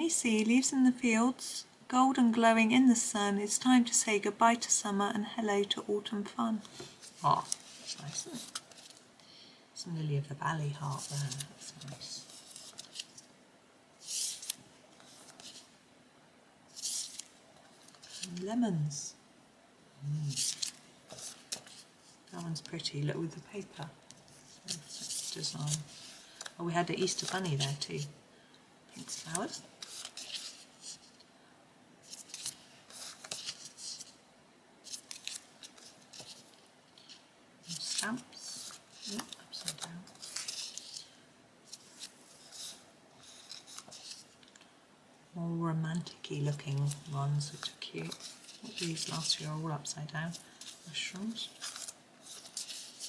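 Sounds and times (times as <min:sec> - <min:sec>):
sticker sheets rustling on paper: 0:06.7 - 0:09.0, 0:10.8 - 0:13.3, 0:14.0 - 0:15.7, 0:16.7 - 0:18.4, 0:20.2 - 0:22.8, 0:23.6 - 0:28.1, 0:29.0 - 0:31.2, 0:32.0 - 0:34.2, 0:34.8 - 0:44.5, 0:46.5 - 0:53.0.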